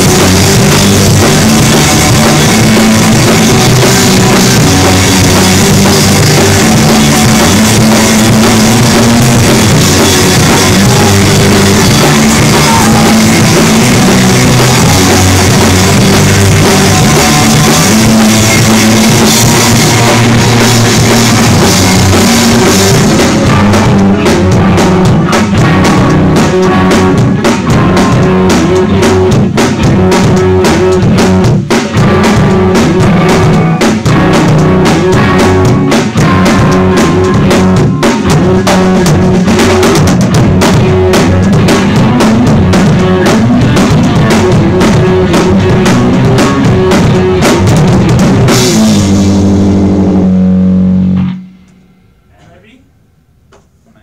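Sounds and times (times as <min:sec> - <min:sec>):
rock band playing punk: 0:00.0 - 0:52.8.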